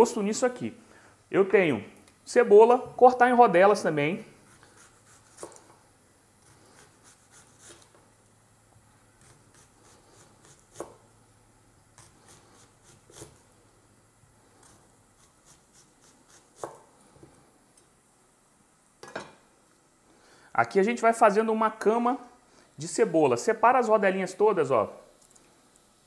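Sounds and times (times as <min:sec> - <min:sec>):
knife slicing onion: 0:04.4 - 0:05.8, 0:06.4 - 0:08.0, 0:09.2 - 0:11.1, 0:11.9 - 0:13.6, 0:14.5 - 0:17.0.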